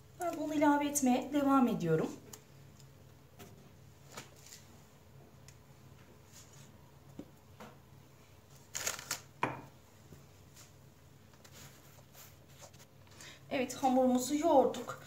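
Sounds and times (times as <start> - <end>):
dough rustling and squishing: 2.0 - 7.6.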